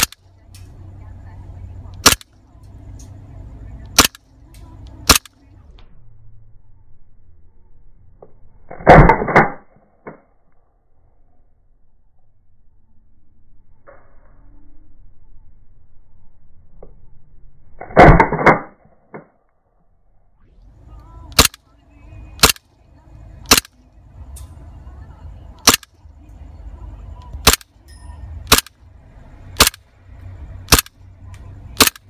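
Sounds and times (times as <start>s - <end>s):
airsoft pistol shooting pops: 2.0s - 2.3s, 3.9s - 4.2s, 5.1s - 5.3s, 21.4s - 21.6s, 22.4s - 22.6s, 23.5s - 23.8s, 25.6s - 25.9s, 27.4s - 27.7s, 28.5s - 28.7s, 29.6s - 29.8s, 30.7s - 30.9s, 31.8s - 32.0s.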